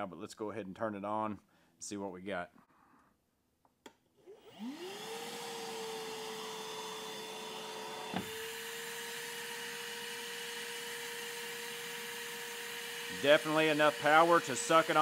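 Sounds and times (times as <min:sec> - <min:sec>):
vacuum motor whining: 0:04.3 - 0:15.0.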